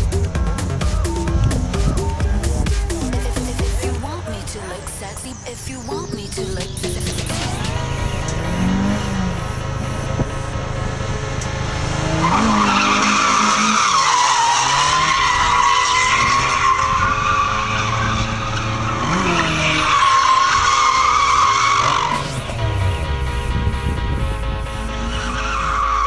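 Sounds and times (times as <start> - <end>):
car engine revving: 0.0 - 26.0
car tyres squealing: 6.6 - 26.0.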